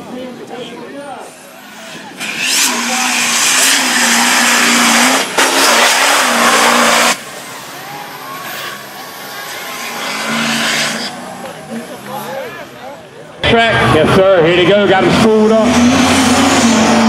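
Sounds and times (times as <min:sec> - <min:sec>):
truck engine racing: 0:00.0 - 0:17.0.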